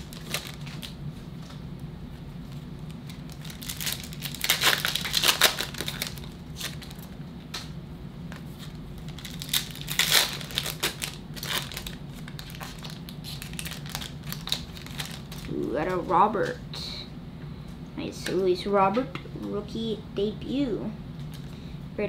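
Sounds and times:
foil wrapper crinkling: 0:00.0 - 0:01.6, 0:02.4 - 0:07.2, 0:08.3 - 0:16.1
cards rustling in hand: 0:08.3 - 0:16.1.

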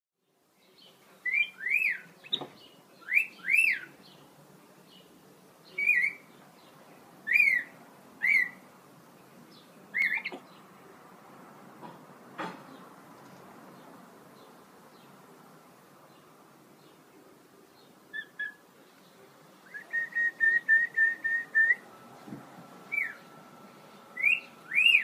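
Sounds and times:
monkey whistled calls: 0:24.2 - 0:25.0.

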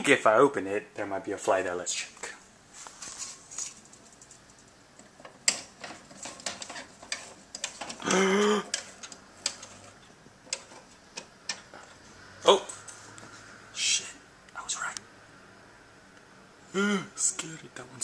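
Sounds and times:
venetian blind slats rattling: 0:03.0 - 0:08.1, 0:08.7 - 0:11.9.

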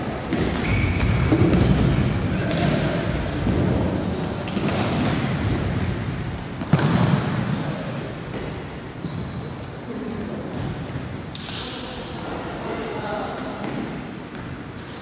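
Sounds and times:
shoe squeak: 0:00.4 - 0:02.5, 0:08.2 - 0:09.2.

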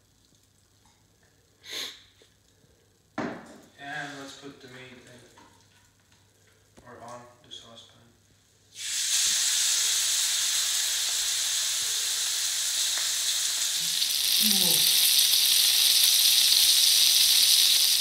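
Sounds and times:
chicken sizzling in a pan: 0:08.8 - 0:18.0.

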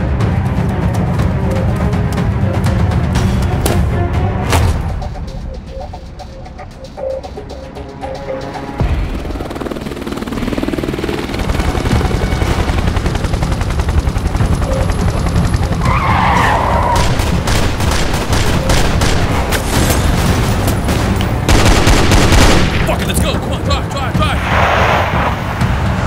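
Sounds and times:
rapid sharp hits: 0:17.0 - 0:24.4.

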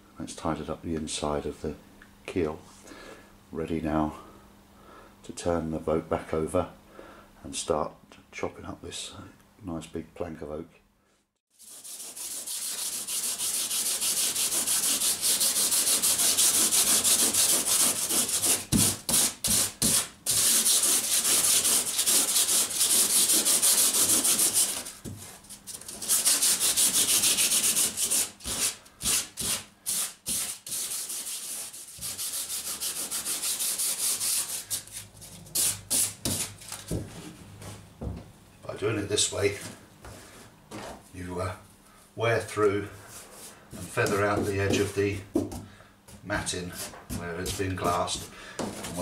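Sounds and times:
sandpaper rasping on fibreglass: 0:11.5 - 0:36.6.

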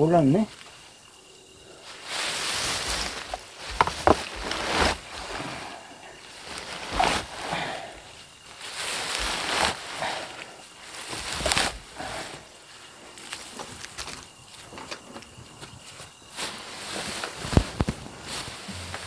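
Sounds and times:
cut weeds rustling: 0:01.8 - 0:15.0.

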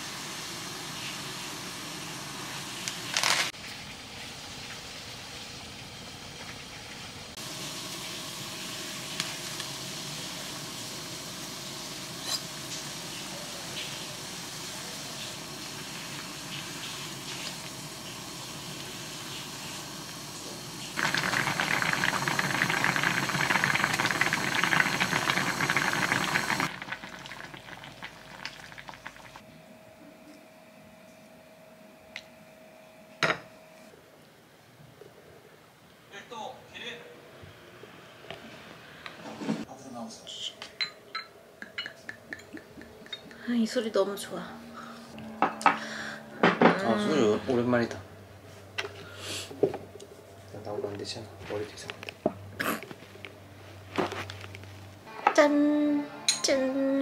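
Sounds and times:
broth boiling and bubbling: 0:00.0 - 0:29.5.

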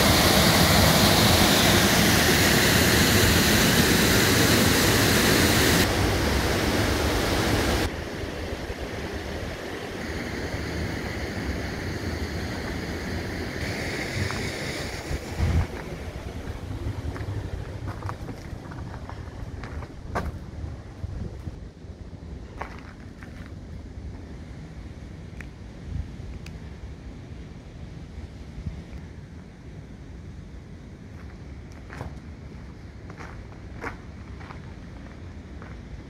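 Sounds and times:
waterfall rushing: 0:00.0 - 0:17.7.

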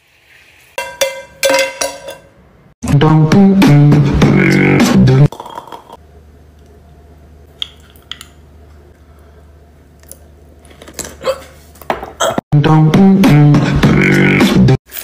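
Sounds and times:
beatbox-style backing music: 0:02.8 - 0:05.3, 0:12.6 - 0:14.8.

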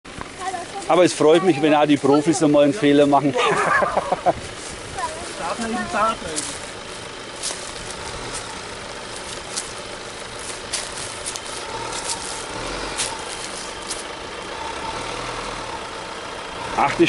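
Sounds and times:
diesel engine running at low revs: 0:00.0 - 0:17.0
sharp crackles: 0:06.3 - 0:14.5.

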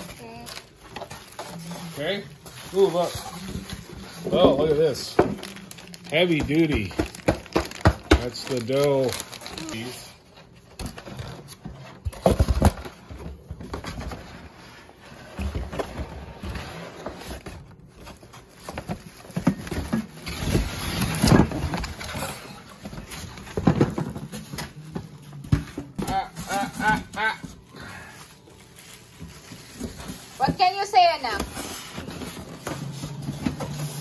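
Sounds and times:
plastic wrapping crinkling: 0:00.0 - 0:11.6, 0:27.5 - 0:34.0
cardboard scraping: 0:28.6 - 0:34.0.

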